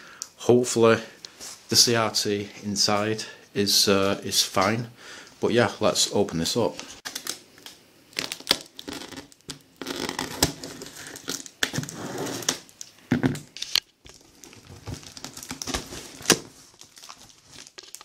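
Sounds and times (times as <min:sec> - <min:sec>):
tape crackling: 0:06.7 - 0:18.0
cardboard rustling: 0:13.5 - 0:18.0.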